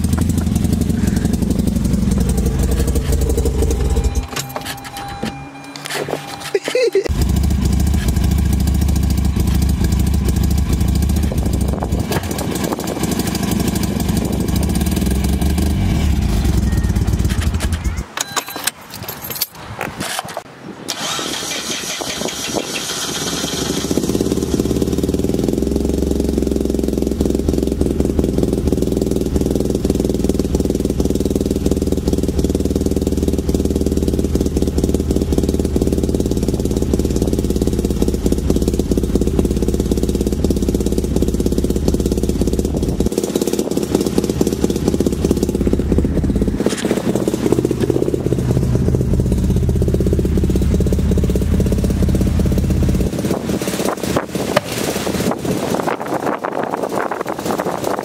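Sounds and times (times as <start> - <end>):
rotary engine idling: 0.0 - 18.2, 20.9 - 58.0
clicks and handling noise: 4.1 - 7.1, 17.2 - 20.5.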